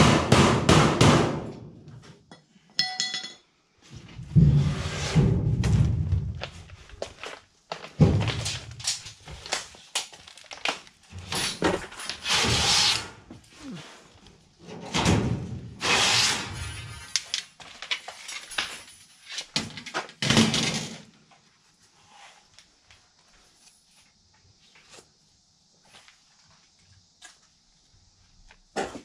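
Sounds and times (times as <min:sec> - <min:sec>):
thin sheet metal thunks: 0:08.0 - 0:08.8
rasping metal scrapes: 0:15.8 - 0:16.7.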